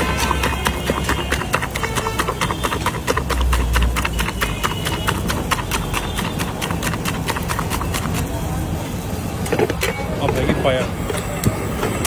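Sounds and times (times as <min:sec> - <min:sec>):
whisk clinking against metal: 0:00.0 - 0:08.4.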